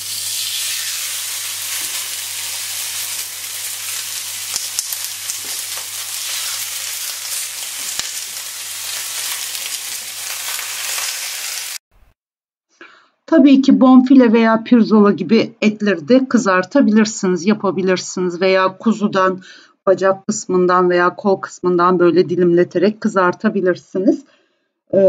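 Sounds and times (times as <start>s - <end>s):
steaks sizzling on grill pan: 0.0s - 11.8s.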